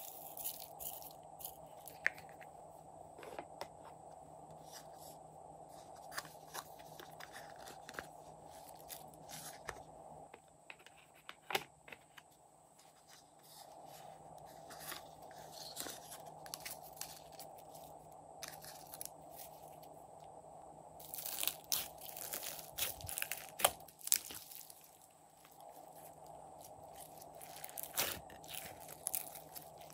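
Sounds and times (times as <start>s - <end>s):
faint steady hum: 0.0s - 29.9s
contents crackling: 21.0s - 29.9s.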